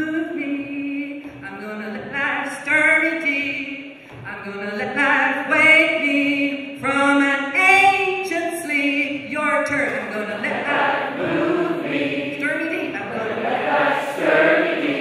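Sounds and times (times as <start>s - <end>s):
woman singing into microphone: 0.0s - 10.6s
group singing back: 10.1s - 15.0s.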